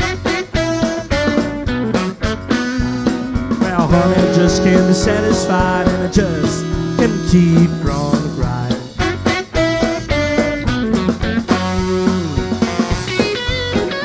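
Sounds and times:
bass: 0.0 - 14.0
drums: 0.0 - 14.0
electric guitar sliding notes: 3.2 - 10.2.

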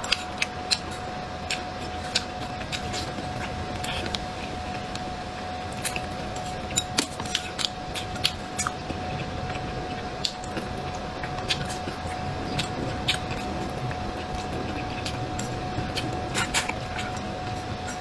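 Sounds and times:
wet chewing and lip-smacking: 0.0 - 4.8, 5.7 - 18.0
thin steady hum: 0.0 - 18.0.

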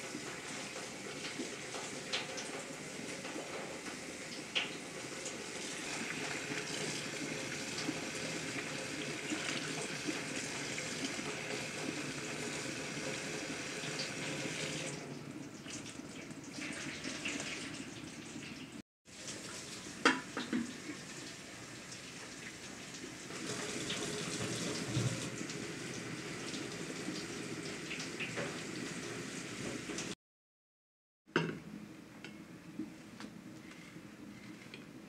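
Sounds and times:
tap water splashing over meat: 20.0 - 20.9, 23.8 - 25.6.

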